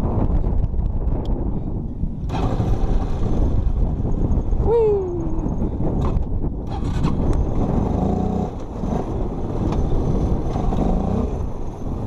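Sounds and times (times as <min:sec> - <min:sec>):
quad bike engine running: 0:02.3 - 0:04.6, 0:05.5 - 0:12.0.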